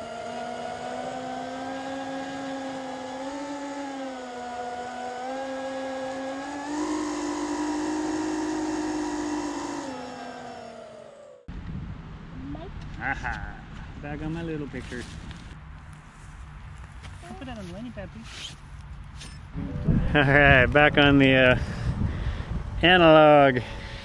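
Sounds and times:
quadcopter motors whining: 0.0s - 11.5s.

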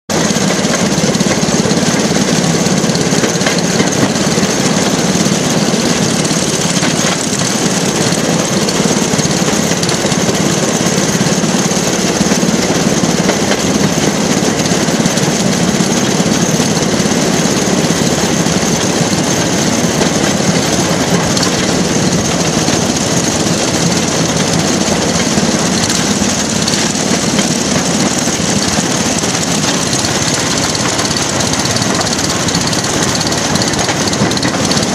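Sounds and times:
rail car engine running: 0.1s - 34.9s.

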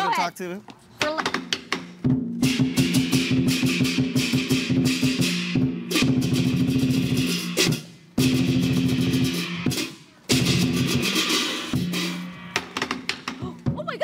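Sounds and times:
large drum beaten fast: 1.0s - 14.0s
hand cymbals clashing: 2.4s - 12.8s.

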